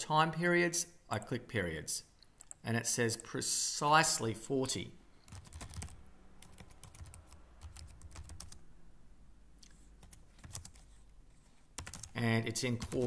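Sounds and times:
computer keyboard typing: 5.2 - 8.6, 9.6 - 11.0, 11.8 - 13.0.

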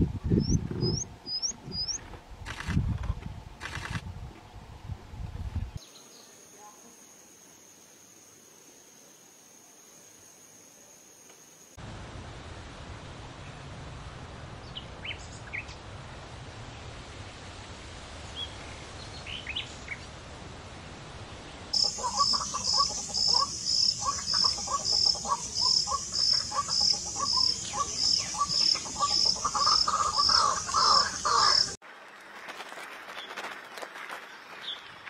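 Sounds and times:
birds chirping: 0.4 - 2.0, 21.8 - 31.8
faint steady hiss: 4.1 - 33.0
insect pulsing: 21.8 - 31.8
quick repeated bird calls: 21.8 - 31.8.

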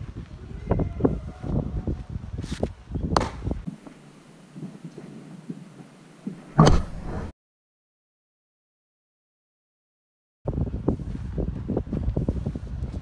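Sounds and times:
outdoor rustle: 0.0 - 7.2
baseball popping into mitt: 3.1 - 3.6.

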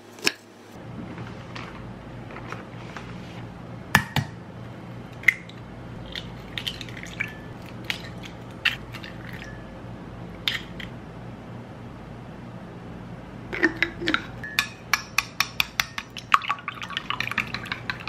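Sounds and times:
eggs cracking against a ceramic mug: 13.5 - 18.0.

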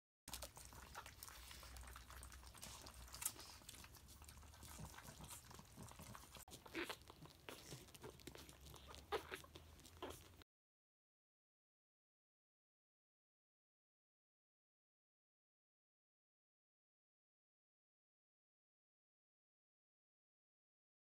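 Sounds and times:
puppies eating from bowls: 0.3 - 10.4.

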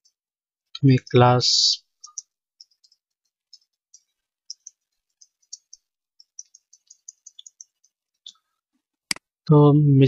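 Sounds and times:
computer keyboard typing: 2.0 - 8.3.

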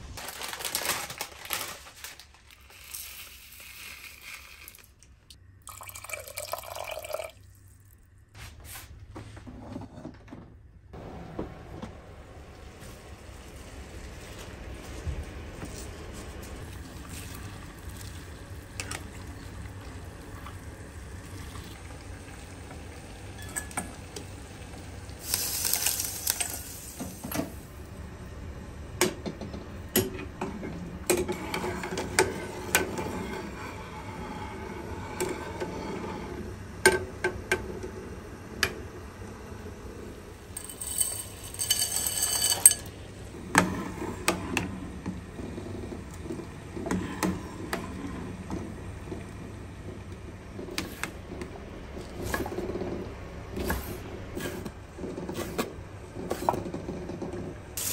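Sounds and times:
utensils clinking against pot: 40.6 - 42.9.

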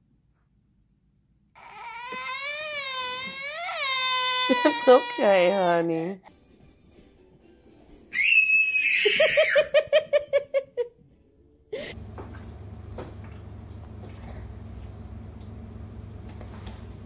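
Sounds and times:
person laughing: 9.0 - 10.9, 11.8 - 12.0
steady low hum: 11.7 - 17.0.

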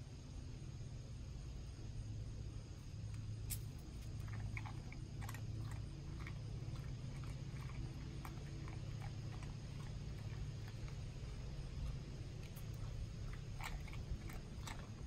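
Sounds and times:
low hum: 1.6 - 15.0
dog crunching crackers: 3.5 - 15.0.

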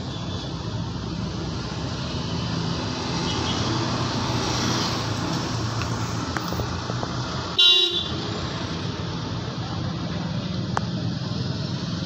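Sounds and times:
loud car horn honk: 7.6 - 8.2.

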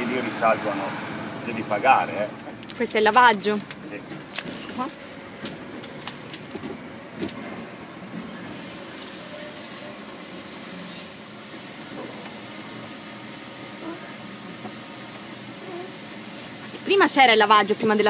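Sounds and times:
water jets spraying: 10.2 - 18.0.

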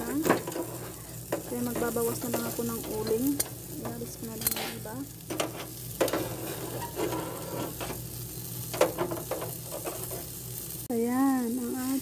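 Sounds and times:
charcoal crackling: 0.0 - 12.0
meat sizzling on a grill: 0.0 - 12.0.

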